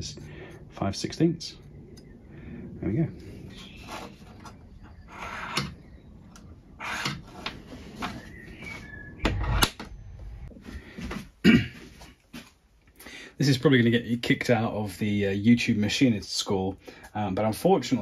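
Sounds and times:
calipers scratching brass: 3.5 - 5.8, 6.8 - 8.3.

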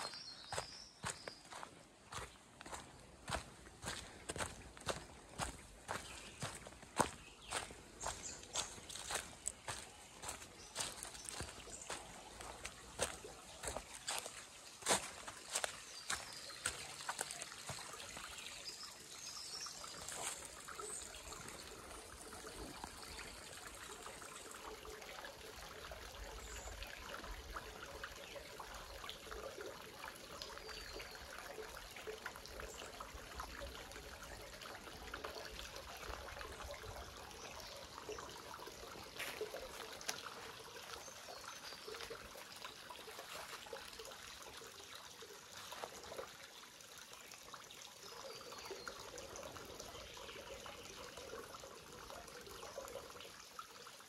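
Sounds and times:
stream trickling: 0.0 - 54.0.

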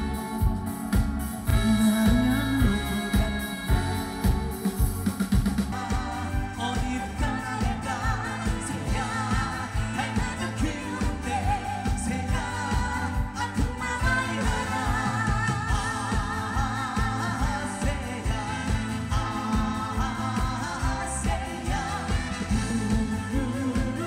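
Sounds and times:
band playing pop song: 0.0 - 24.0.

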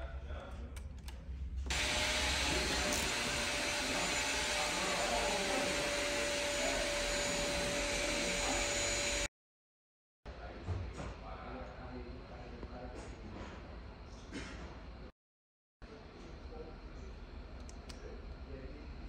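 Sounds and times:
electric motor fan whining: 1.0 - 9.3.

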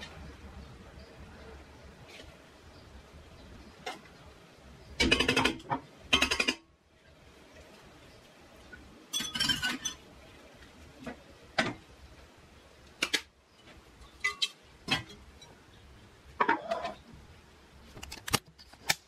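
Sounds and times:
utensils and dishes clinking: 9.1 - 10.1, 13.0 - 15.6.

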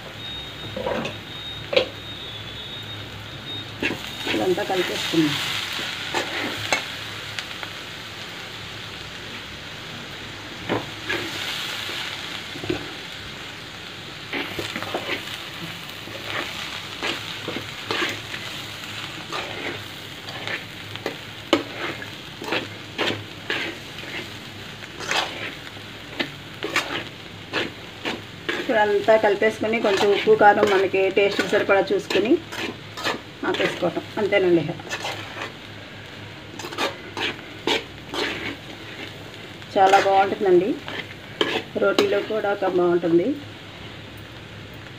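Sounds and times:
vegetables sizzling: 0.0 - 44.9
metal spoon scraping a pan: 3.8 - 5.1, 6.1 - 6.9, 14.3 - 15.3, 16.1 - 18.5, 19.2 - 24.4, 25.0 - 34.0, 34.8 - 35.6, 36.6 - 39.2, 39.8 - 42.6.

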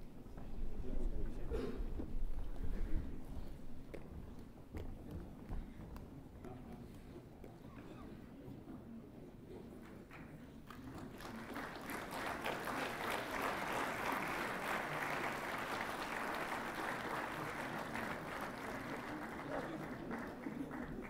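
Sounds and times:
audience applauding: 10.7 - 21.0.

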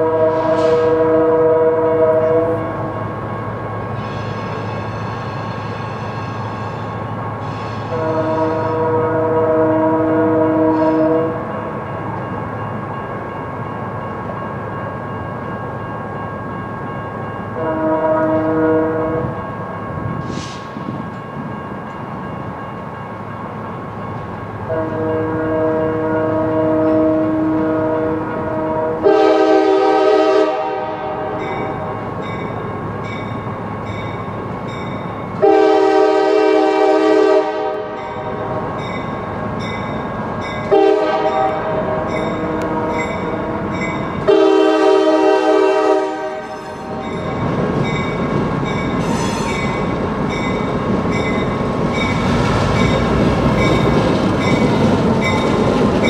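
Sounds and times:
locomotive air horn blasts: 0.0 - 2.9, 7.6 - 11.5, 17.6 - 19.4, 24.7 - 32.0, 35.4 - 38.7, 40.7 - 47.1, 49.0 - 49.8.

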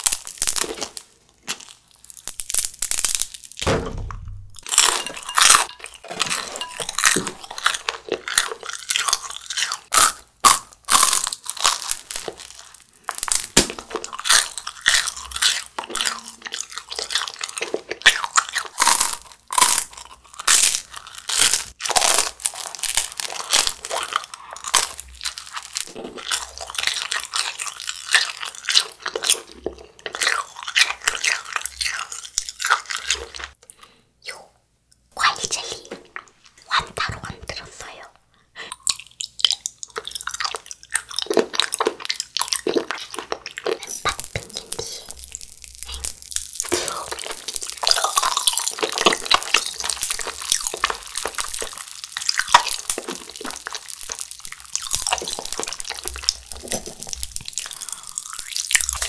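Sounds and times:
crunching and chewing snack: 0.0 - 3.6, 4.6 - 34.0, 38.7 - 59.0
dull low bump: 3.6 - 4.7.

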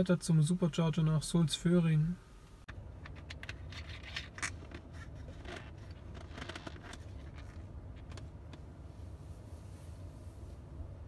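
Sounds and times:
low hum inside car cabin: 0.0 - 11.0
faint clicks and rustles: 3.0 - 10.5.

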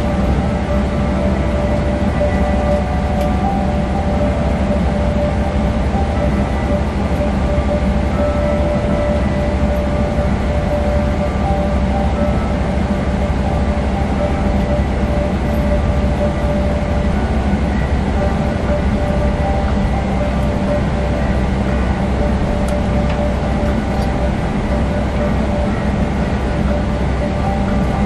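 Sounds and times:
airliner engine rumble: 0.0 - 28.0
steady whining tones: 0.0 - 28.0.

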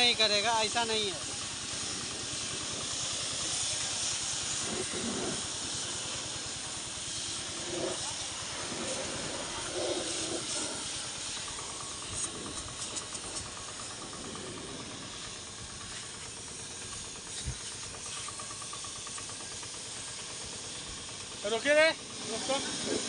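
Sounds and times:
pressure washer spraying water: 0.0 - 23.0.

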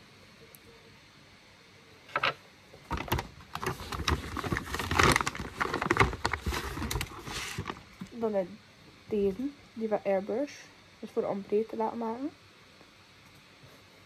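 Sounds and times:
paper bag crinkling: 2.8 - 8.2.

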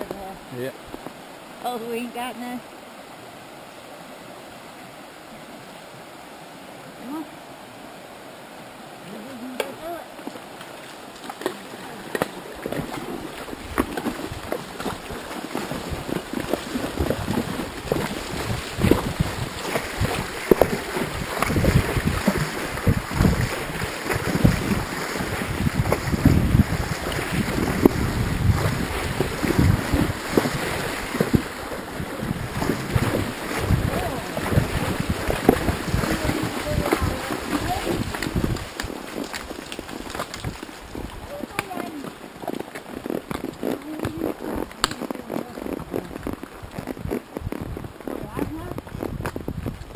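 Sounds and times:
hooves splashing in water: 8.6 - 49.9
wind on microphone: 12.6 - 49.9.

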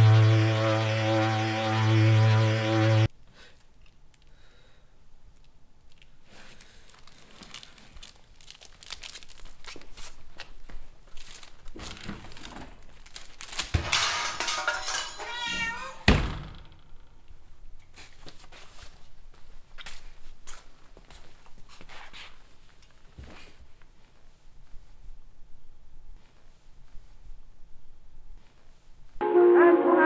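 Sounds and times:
high-pitched cry: 15.1 - 16.1.

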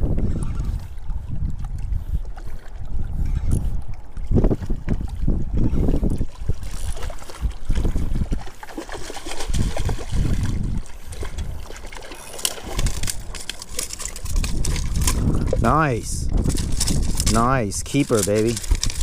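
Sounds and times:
fish splashing in water: 6.2 - 15.6.

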